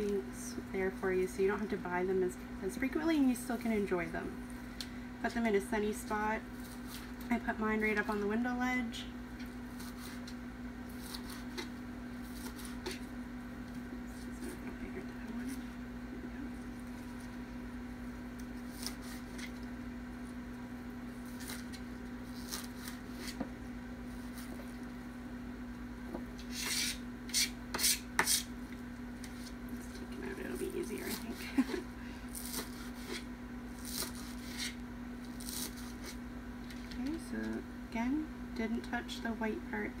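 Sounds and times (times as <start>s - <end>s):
steady low hum: 0.0s - 40.0s
knife slicing green onions: 9.7s - 13.1s, 26.4s - 28.5s, 31.1s - 36.2s.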